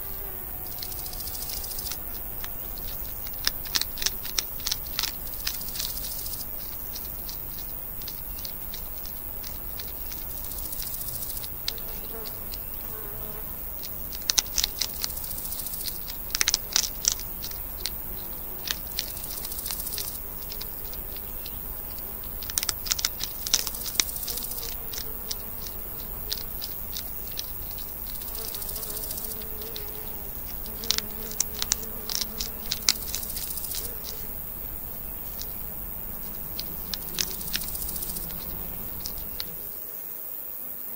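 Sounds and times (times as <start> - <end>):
hedgehogs crunching food: 0.0 - 39.8
insects buzzing faintly: 0.0 - 40.9.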